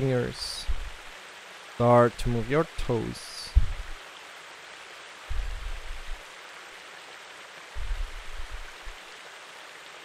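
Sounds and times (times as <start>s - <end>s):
steady hiss: 0.0s - 10.0s
low muffled rumble: 3.5s - 4.0s, 5.3s - 6.2s, 7.8s - 9.0s.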